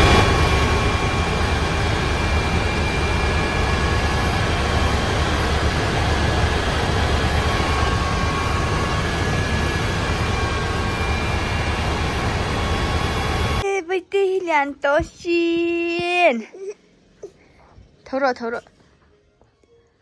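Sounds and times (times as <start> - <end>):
helicopter engine and rotor drone: 0.0 - 13.6
thin high whines: 0.0 - 13.6.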